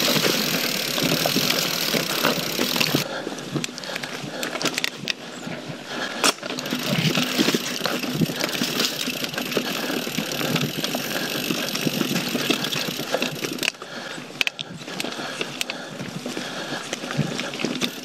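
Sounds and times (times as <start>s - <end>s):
chain and frame rattling: 0.0s - 3.0s, 6.4s - 13.7s
bike tyres rolling on dirt: 0.0s - 18.0s.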